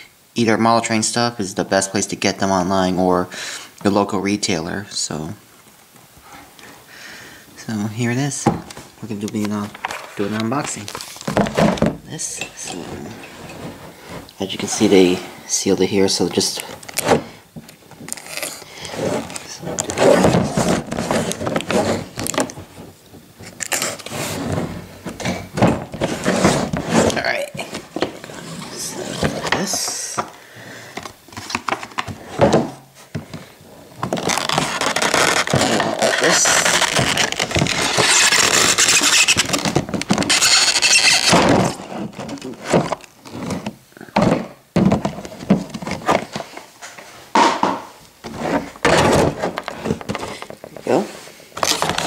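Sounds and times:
cardboard and tape scraping: 8.7 - 15.4, 18.0 - 30.2, 34.0 - 47.0, 48.2 - 52.0
tape ripping off a box: 18.1 - 18.6, 23.4 - 24.3, 34.0 - 43.1.

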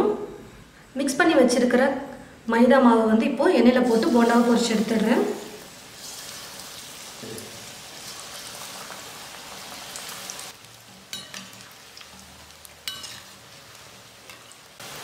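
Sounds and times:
batter deep-frying sizzle: 3.6 - 15.0.

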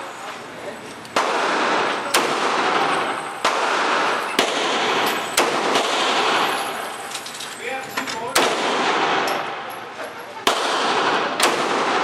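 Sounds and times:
handgun shots echoing: 1.1 - 6.6, 8.3 - 9.8, 10.4 - 12.0.

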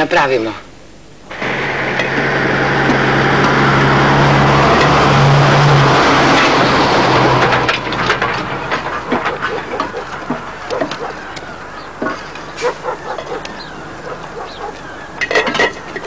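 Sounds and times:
lorry engine running: 1.3 - 16.0
sharp knocks and clatters: 6.2 - 13.4.

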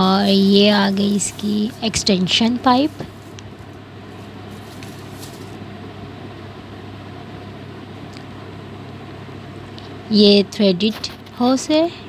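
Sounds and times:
plastic wrapping crinkling: 0.0 - 5.6
mechanical hum: 0.0 - 12.0.

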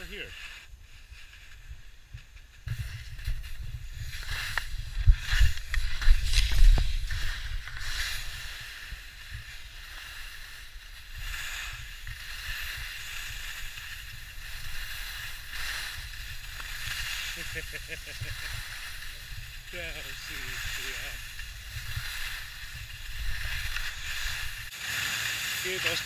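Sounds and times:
skis hissing on snow: 0.0 - 26.0.

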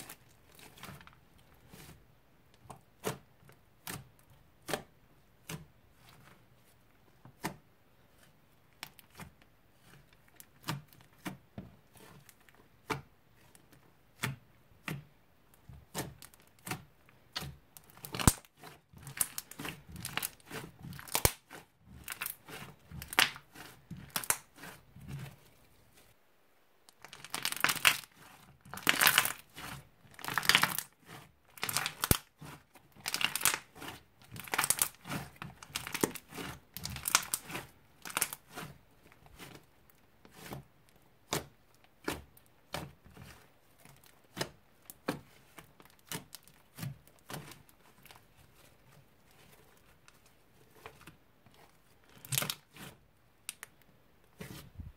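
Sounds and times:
slime popping and crackling: 15.8 - 24.8, 26.9 - 38.7.

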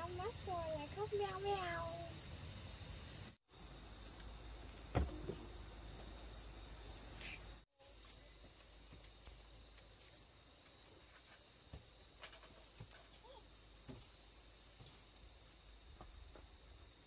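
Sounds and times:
insect high-pitched trill: 0.0 - 17.0.

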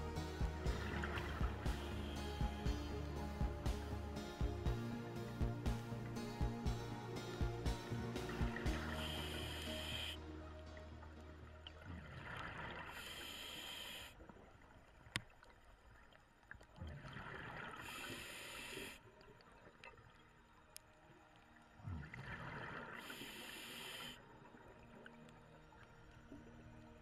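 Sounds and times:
scuba regulator breathing: 8.9 - 10.2, 12.8 - 14.2, 17.8 - 19.0, 23.0 - 24.2.

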